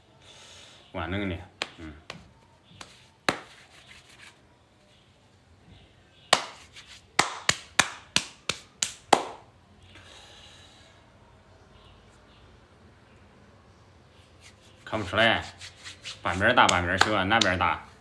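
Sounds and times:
hands smacking: 0:01.6 - 0:03.7, 0:06.3 - 0:09.5, 0:15.8 - 0:17.8.

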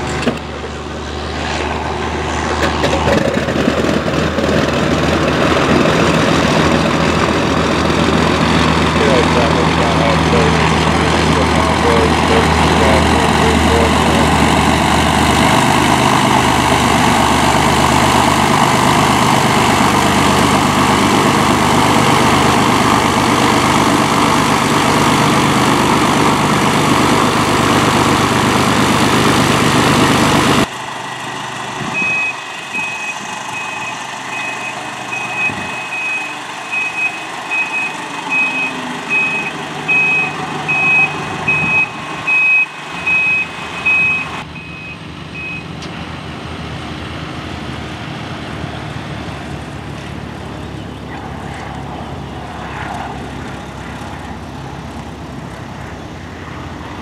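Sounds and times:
aircraft engine at full power: 0:00.0 - 0:57.0
reversing alarm beeps: 0:32.0 - 0:45.7.

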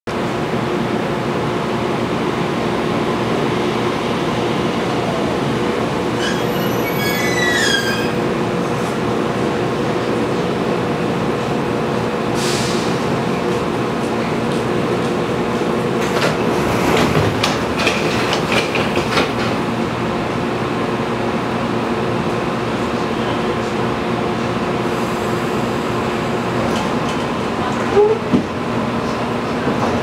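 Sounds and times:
train motors and wheels rumbling: 0:00.1 - 0:30.0
wheel squeal: 0:06.2 - 0:08.2.

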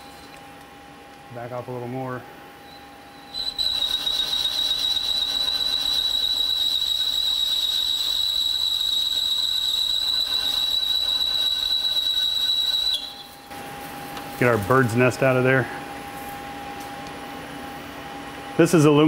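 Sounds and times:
lathe tool chatter squeal: 0:02.7 - 0:13.4.

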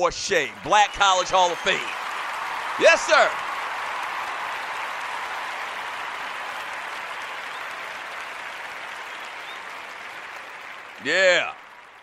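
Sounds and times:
crowd applause: 0:00.0 - 0:12.0.

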